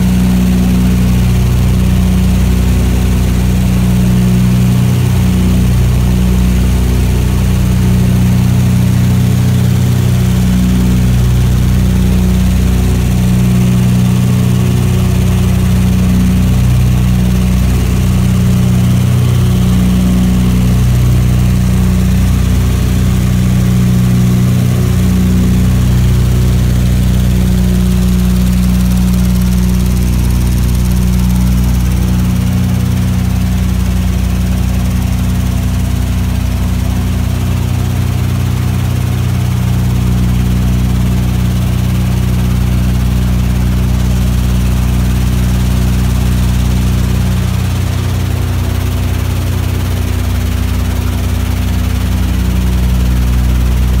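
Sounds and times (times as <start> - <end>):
propeller aircraft engines droning: 0.0 - 37.4, 48.6 - 54.0.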